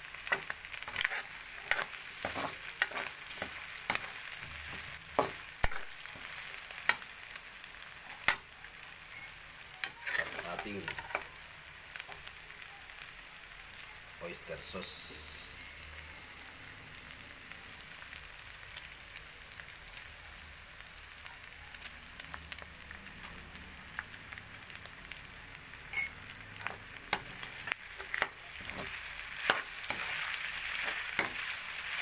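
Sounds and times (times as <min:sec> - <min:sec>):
meat sizzling in hot oil: 0:00.0 - 0:32.0
metal spatula scraping pan: 0:00.2 - 0:05.4, 0:09.8 - 0:11.0, 0:25.9 - 0:26.2, 0:27.6 - 0:31.5.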